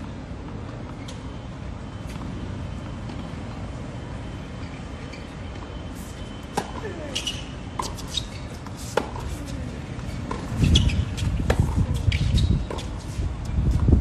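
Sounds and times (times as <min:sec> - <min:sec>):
shoes squeaking: 0:00.5 - 0:03.6, 0:04.5 - 0:14.0
wind rumble on microphone: 0:09.7 - 0:14.0.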